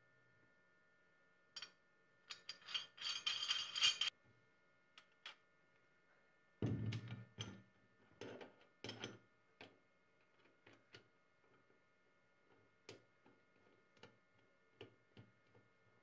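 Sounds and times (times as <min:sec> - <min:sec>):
metal parts clinking and scraping: 0:02.3 - 0:04.1.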